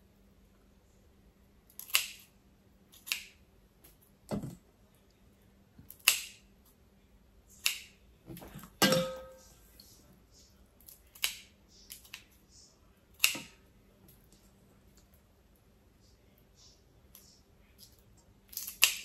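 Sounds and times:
short metallic ring: 8.8s - 9.5s.

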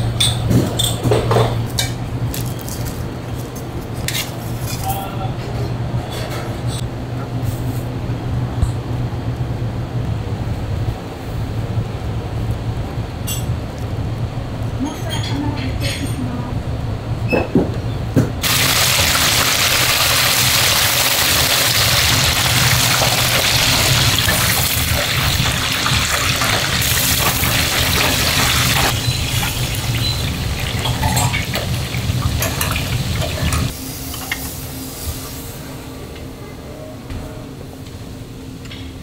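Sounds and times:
loud steady kitchen hiss: 0.0s - 39.0s
kitchen equipment hum: 15.8s - 36.2s
utensils clinking: 26.8s - 33.7s.

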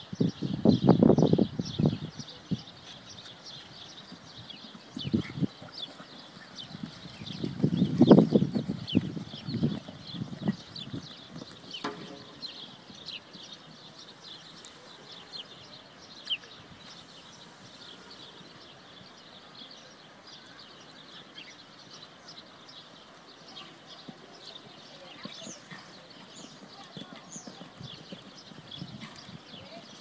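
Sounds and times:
small birds chirping: 0.0s - 30.0s
horse hoofbeats on sand: 2.8s - 14.1s, 23.5s - 30.0s.

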